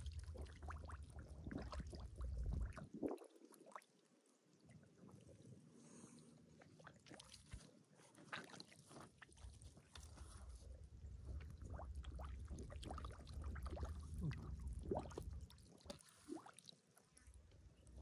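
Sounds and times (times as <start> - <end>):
splashing shallow water: 6.6 - 10.6
low rumble: 10.6 - 15.7.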